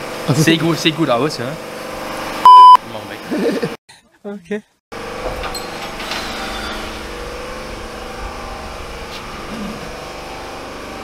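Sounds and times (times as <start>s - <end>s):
motor or fan droning: 5.0s - 11.0s.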